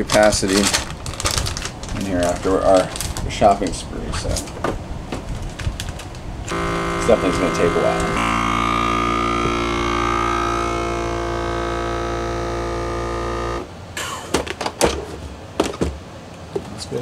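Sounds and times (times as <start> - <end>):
plastic bag crinkling: 0.0 - 3.7, 5.3 - 6.2
vacuum sealer pump running: 6.5 - 13.7.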